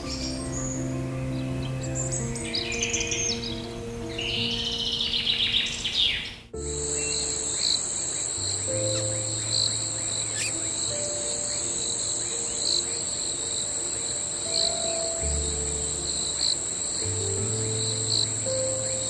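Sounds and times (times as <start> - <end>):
calm music of held chords: 0.0 - 19.0
shrill insect trilling: 6.6 - 19.0.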